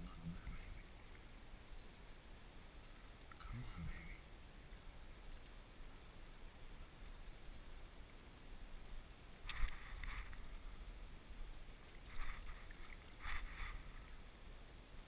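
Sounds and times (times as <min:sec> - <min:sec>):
water splashes: 0:09.4 - 0:11.0, 0:11.7 - 0:14.4.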